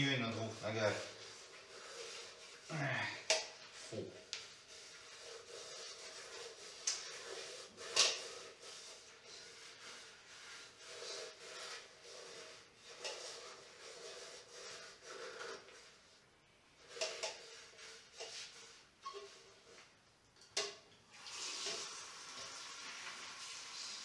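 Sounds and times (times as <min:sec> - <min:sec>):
gloved hands rubbing metal: 0:00.0 - 0:02.7, 0:03.4 - 0:16.1.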